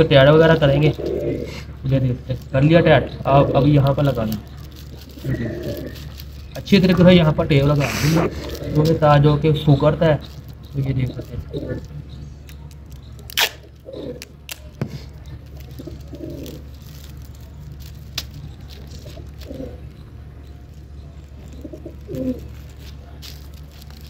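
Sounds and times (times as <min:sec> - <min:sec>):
pigeons cooing: 0:00.0 - 0:24.0
steady low hum: 0:00.0 - 0:24.0
tape and plastic crackles: 0:00.0 - 0:24.0
packing tape ripping: 0:03.8 - 0:09.0, 0:10.2 - 0:19.8, 0:21.7 - 0:24.0.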